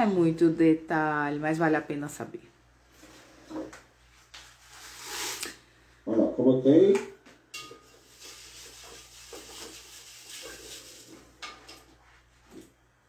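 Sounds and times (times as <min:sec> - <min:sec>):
spatula scraping in beaker: 0:04.5 - 0:05.6, 0:07.9 - 0:11.3
spatula clinking on glass: 0:07.5 - 0:08.1.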